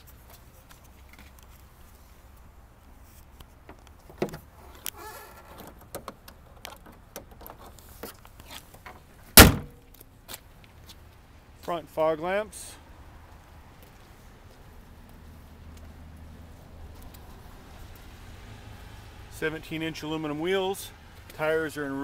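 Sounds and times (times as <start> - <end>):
car hood shutting thump: 9.4 - 9.8.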